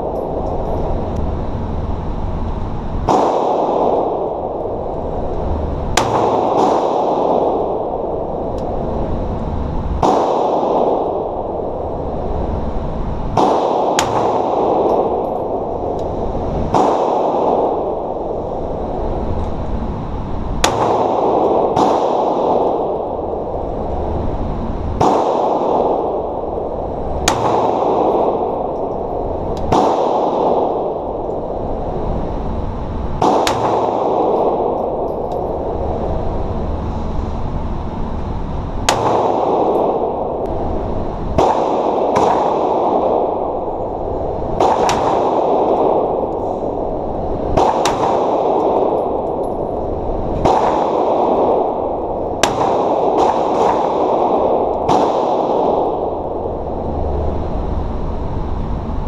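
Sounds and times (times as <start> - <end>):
pistol shots with echo: 3.0 - 4.8, 5.6 - 8.6, 9.2 - 12.4, 13.4 - 18.7, 20.6 - 23.7, 25.0 - 31.6, 33.2 - 35.7, 38.8 - 56.4.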